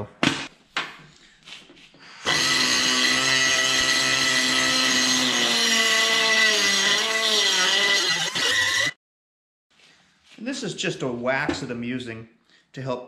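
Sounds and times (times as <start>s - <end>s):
air die grinder whining: 2.2s - 9.0s.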